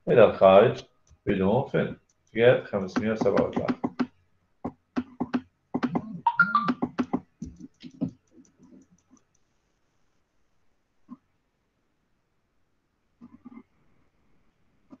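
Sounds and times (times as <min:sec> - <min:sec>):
person speaking in fragments: 0:01.3 - 0:03.8.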